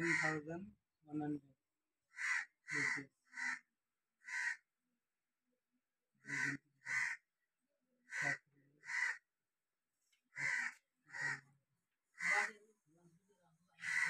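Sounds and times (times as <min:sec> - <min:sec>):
crow cawing: 0:00.0 - 0:00.5, 0:02.1 - 0:04.7, 0:06.2 - 0:07.3, 0:08.1 - 0:09.3, 0:10.3 - 0:11.6, 0:12.2 - 0:12.5, 0:13.8 - 0:14.0.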